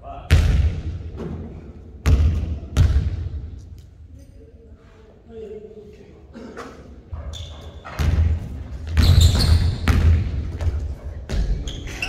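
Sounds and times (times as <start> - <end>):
sneaker squeak: 7.1 - 10.0, 11.3 - 12.0
basketball bouncing on wooden floor: 7.4 - 11.5.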